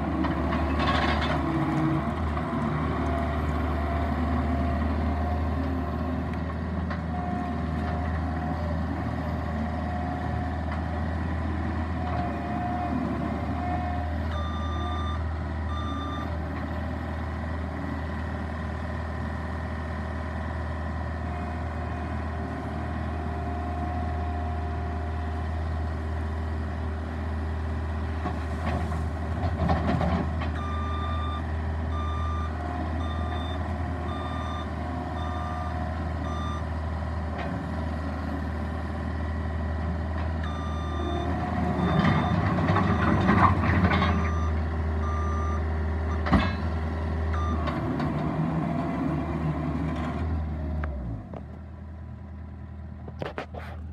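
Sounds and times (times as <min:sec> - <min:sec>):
diesel engine running: 0:00.0 - 0:53.9.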